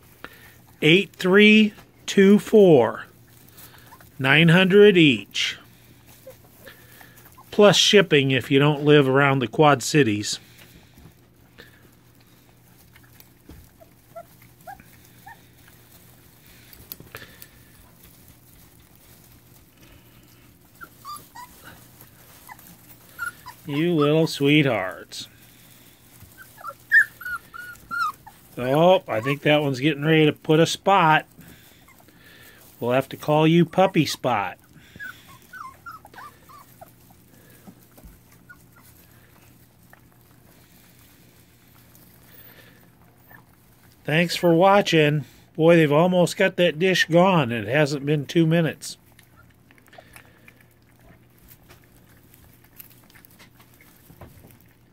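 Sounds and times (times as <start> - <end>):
faint steady hum: 0.0 - 54.9
puppies squeaking and whimpering: 3.2 - 4.2, 5.4 - 8.0, 11.2 - 44.6, 49.0 - 54.9
puppy squeaks: 20.8 - 21.8, 22.4 - 24.2, 26.3 - 28.6, 35.0 - 37.0.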